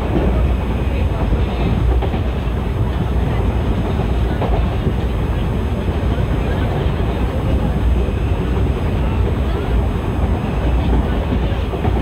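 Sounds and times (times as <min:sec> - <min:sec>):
train coach rumbling on track: 0:00.0 - 0:12.0.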